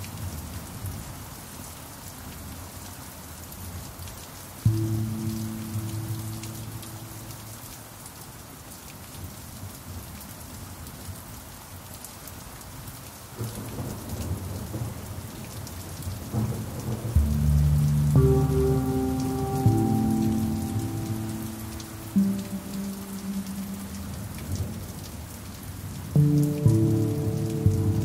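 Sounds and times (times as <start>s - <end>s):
rain falling on a surface: 0.0s - 28.0s
thunder rumble: 16.2s - 25.1s
pan drum notes: 17.2s - 24.2s, 26.2s - 28.0s.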